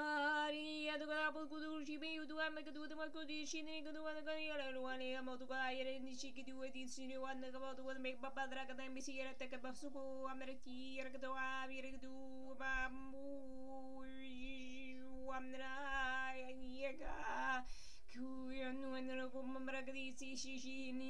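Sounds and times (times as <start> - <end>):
person breathing: 17.6 - 18.1.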